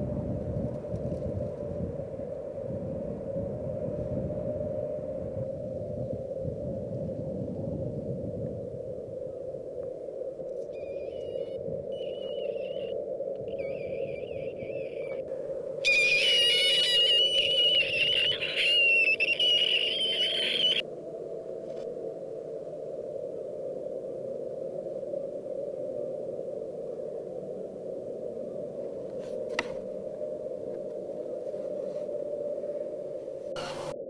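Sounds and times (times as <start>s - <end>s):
piercing high-pitched squealing tone: 10.8s - 15.2s, 15.8s - 20.8s.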